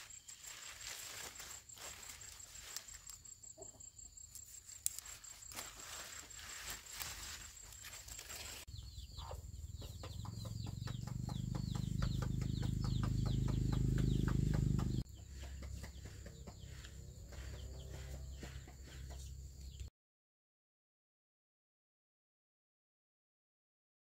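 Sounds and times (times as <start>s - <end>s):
chickens calling rapidly: 6.6s - 19.4s.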